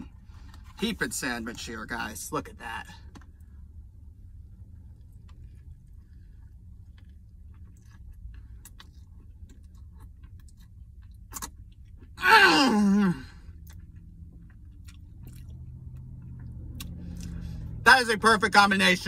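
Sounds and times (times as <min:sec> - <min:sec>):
low steady hum: 0:00.0 - 0:19.0
person chewing: 0:04.6 - 0:17.6.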